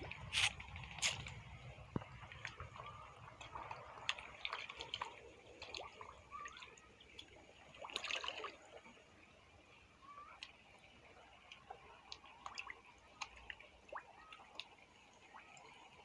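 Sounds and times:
fish slurping and splashing: 0.0 - 8.9.

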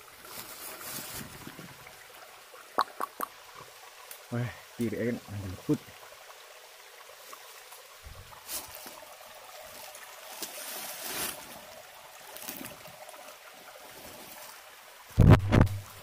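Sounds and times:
rustling in dry leaves: 0.0 - 1.8, 7.2 - 14.7.

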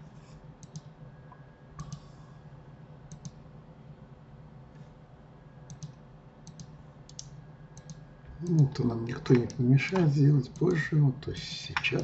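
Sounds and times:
low steady hum: 0.0 - 12.0
computer mouse clicking: 0.6 - 0.9, 1.8 - 2.1, 3.1 - 3.4, 5.7 - 10.8.

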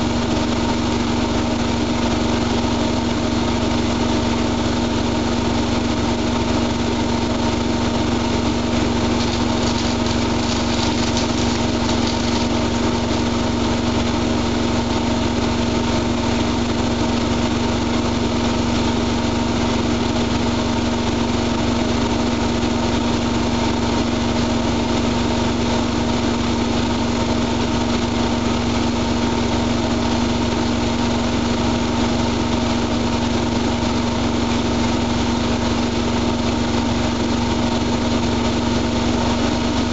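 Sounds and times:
washing machine motor humming: 8.1 - 14.8.

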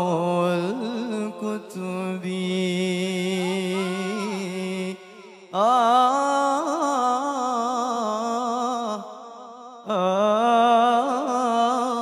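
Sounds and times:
men chanting held notes: 3.1 - 5.4.

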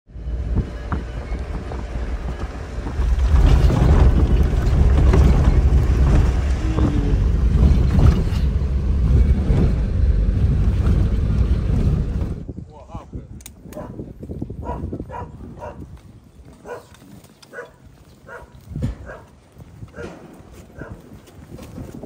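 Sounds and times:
car engine and road rumble: 0.1 - 12.7
wind noise: 0.1 - 22.0
car knocks and rattles: 3.0 - 10.0.

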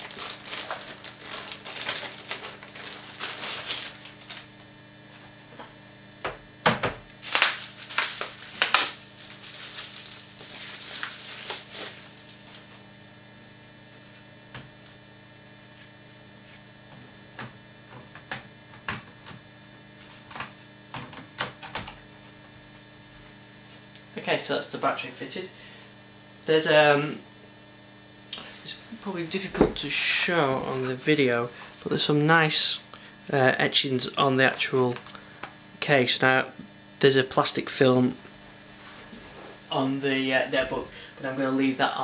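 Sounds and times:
plastic wrapping crinkling: 0.0 - 4.6, 7.2 - 12.6
electrical hum: 0.0 - 42.0.

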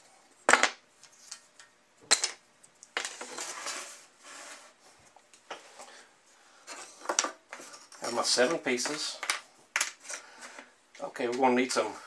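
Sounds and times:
wooden pieces scraping and clattering: 3.0 - 4.6.

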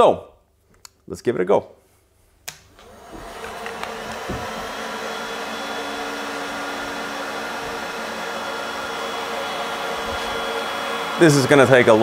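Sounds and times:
heat gun blowing air: 2.8 - 12.0.

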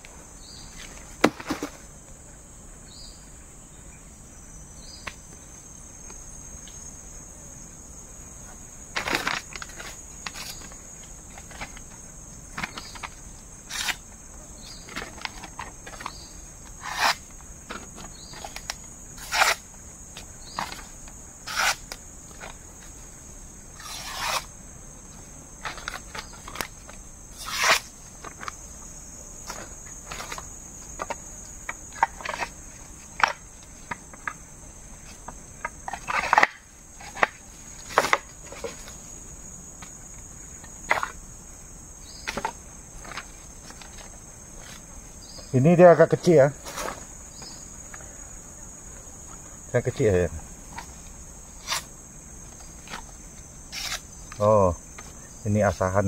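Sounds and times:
insects trilling: 0.0 - 56.0.

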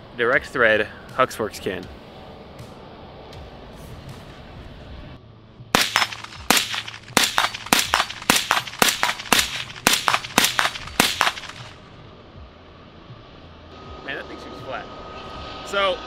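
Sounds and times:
suppressed rifle shots: 5.8 - 11.8.

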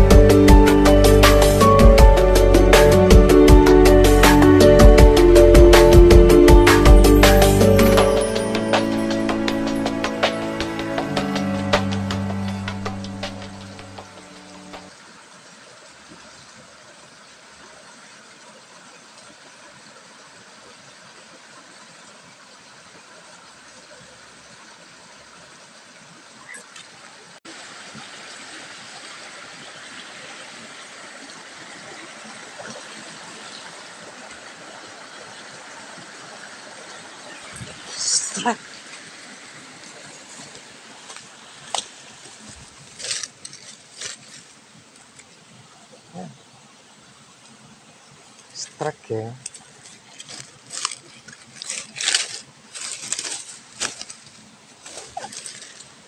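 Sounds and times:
faint outdoor background: 0.0 - 21.1
stream water running: 0.0 - 56.0
rustling through leafy undergrowth: 38.9 - 45.5, 49.6 - 56.0.

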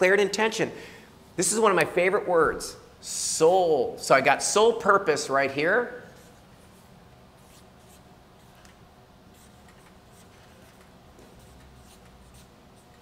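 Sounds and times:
low room hum: 0.0 - 13.0
marker scratching on paper: 6.0 - 8.6, 9.3 - 13.0.

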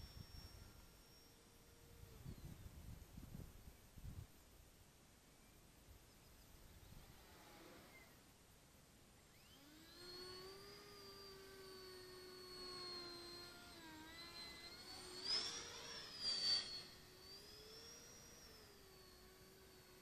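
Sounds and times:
electric ducted fan whining: 0.0 - 3.6, 9.3 - 20.0.

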